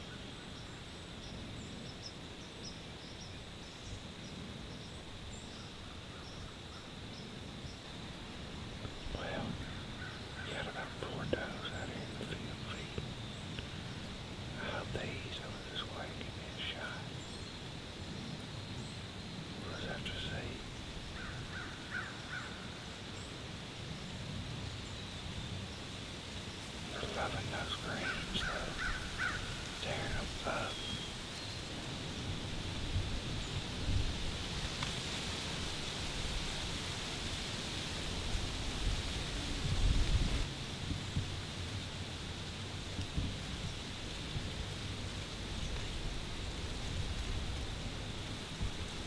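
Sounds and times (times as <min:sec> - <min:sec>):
faint bird chirps: 0:08.8 - 0:23.4, 0:26.9 - 0:31.7
wind rumble on microphone: 0:22.6 - 0:49.0
short bird calls: 0:27.0 - 0:31.2.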